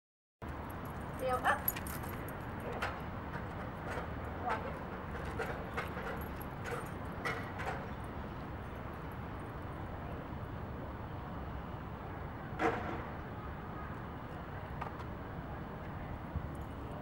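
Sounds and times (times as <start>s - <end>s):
outdoor background rumble: 0.4s - 17.0s.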